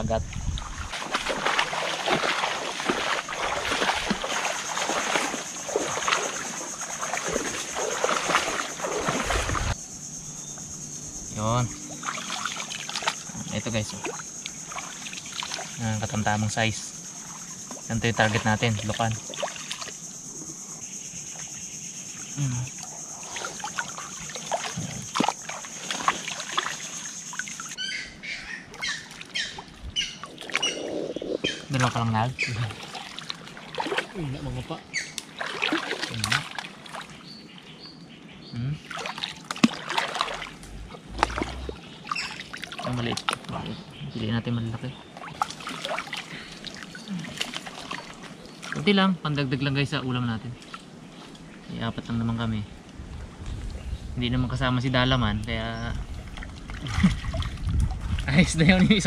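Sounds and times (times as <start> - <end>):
person wading in shallow water: 0.0 - 9.8, 11.9 - 16.2, 17.2 - 20.0, 22.3 - 27.8, 28.6 - 37.7, 38.8 - 43.6, 45.0 - 48.9, 56.0 - 59.0
high insect drone: 0.0 - 28.4, 30.0 - 52.7.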